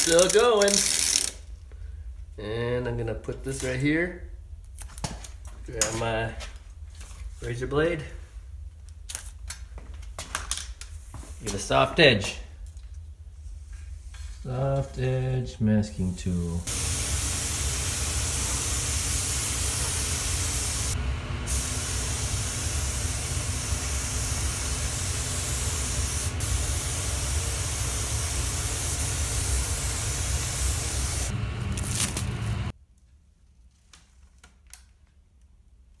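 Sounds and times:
spray gun hissing: 16.7s - 31.4s.

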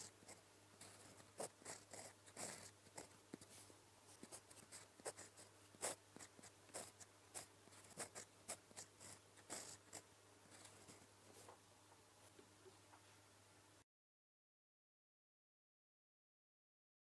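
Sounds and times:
pen nib scratching on paper: 0.0s - 11.5s.

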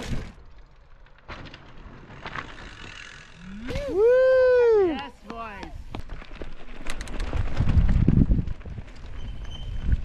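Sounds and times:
bike tyres rumbling on trail: 0.0s - 10.0s
rider whooping: 3.4s - 5.1s.

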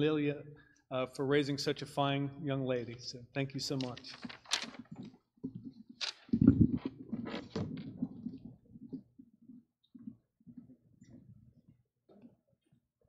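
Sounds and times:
papers rustling: 3.7s - 5.2s, 5.9s - 8.5s
microphone handling clicks: 3.8s - 9.0s.

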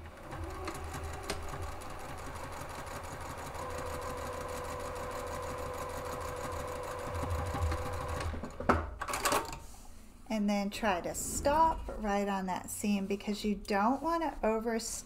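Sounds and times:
sewing machine running: 0.0s - 8.6s.

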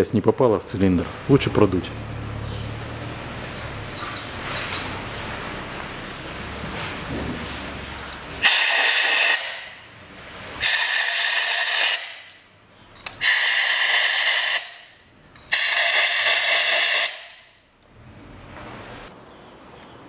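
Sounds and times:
compressed air blow gun blasts: 8.4s - 9.9s, 10.6s - 12.4s, 13.1s - 17.5s.

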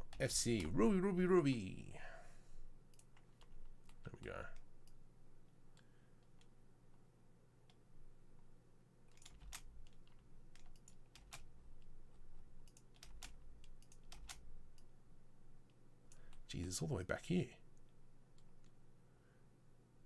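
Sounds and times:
low steady hum: 0.0s - 20.0s
keyboard and mouse clicks: 2.9s - 5.0s, 9.1s - 12.0s, 12.6s - 14.9s.

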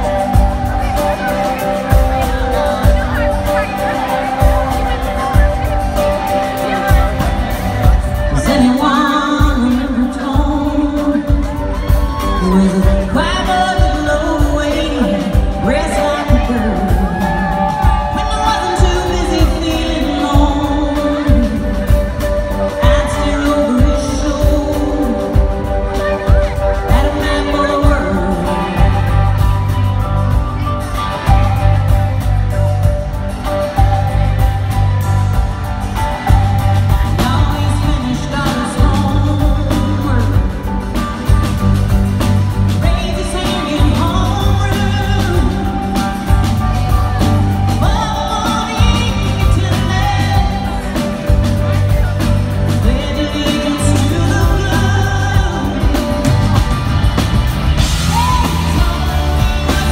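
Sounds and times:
woman singing lead vocal: 0.0s - 57.1s, 57.8s - 59.9s
live country-pop band: 0.0s - 59.9s
audience whooping and shouting: 16.5s - 19.1s, 57.6s - 59.9s.

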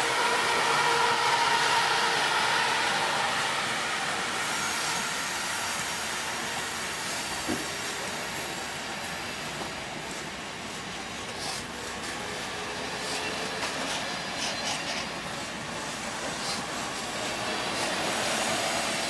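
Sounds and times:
train cars rolling by: 0.0s - 19.0s
high brake squeal: 13.0s - 15.2s.

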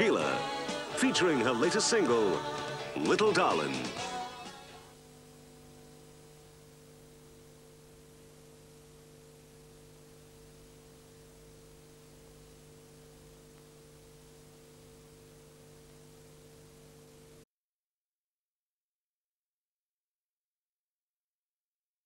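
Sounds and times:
faint mains hum with hiss: 0.0s - 17.4s.

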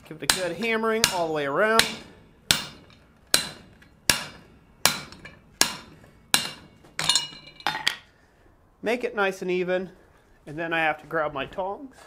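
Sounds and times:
hammer striking metal on anvil: 0.3s - 8.0s.

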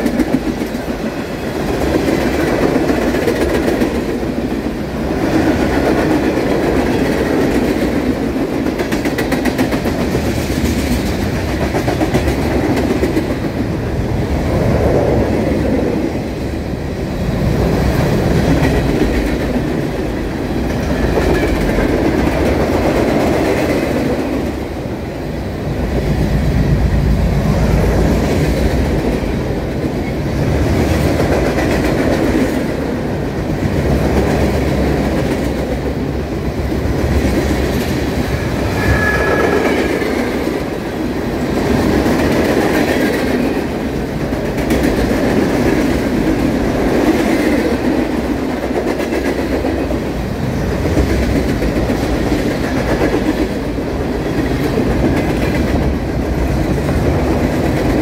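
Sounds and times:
freight train wheels rumbling: 0.0s - 58.0s
train wheel squeal: 38.3s - 41.0s.

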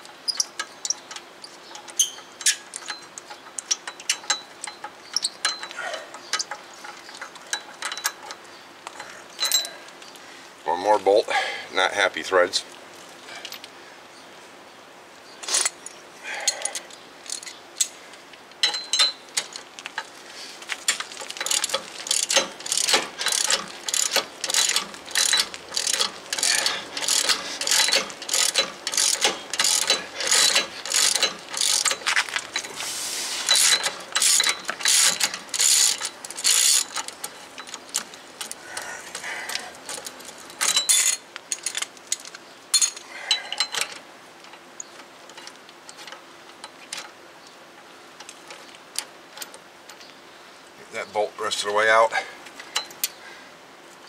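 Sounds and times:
ratchet wrench clicking: 21.4s - 32.1s, 33.5s - 37.7s.

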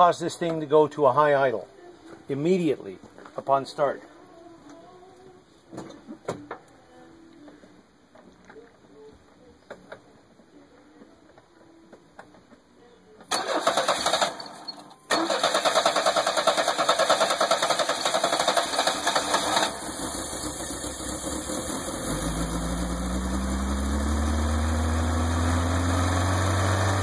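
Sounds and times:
engine starter cranking: 13.3s - 23.1s.

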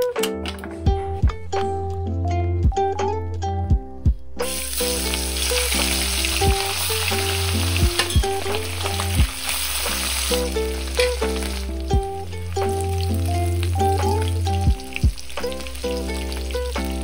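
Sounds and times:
plucked background music: 0.0s - 17.0s
fish sizzling in hot oil: 4.4s - 11.7s, 12.8s - 17.0s.

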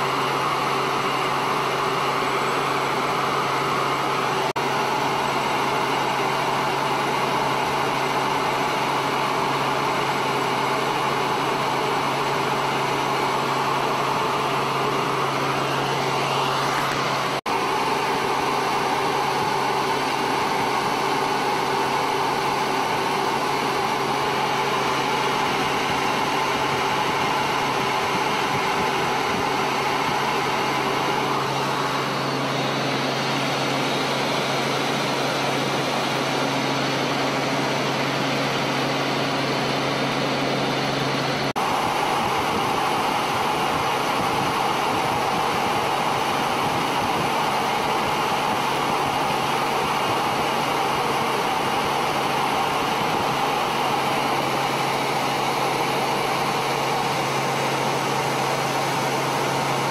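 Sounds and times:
aircraft engine drone in cabin: 0.0s - 59.9s.

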